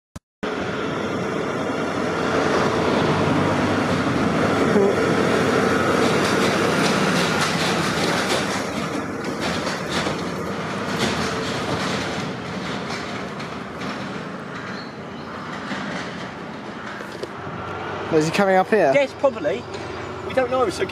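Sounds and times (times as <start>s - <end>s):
tractor engine passing: 0.4s - 20.9s
trailer rattling and clattering: 1.2s - 20.9s.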